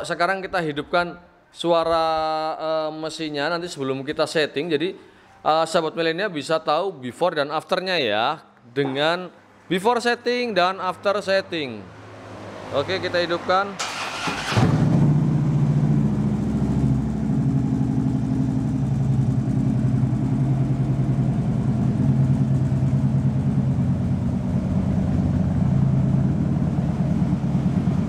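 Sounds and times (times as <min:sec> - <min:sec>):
motorcycle engine idling: 0:15.3 - 0:28.0.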